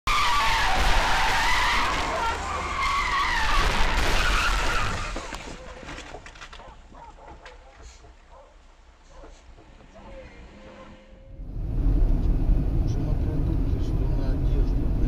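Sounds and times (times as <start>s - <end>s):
car tyres screeching: 0.1s - 6.3s.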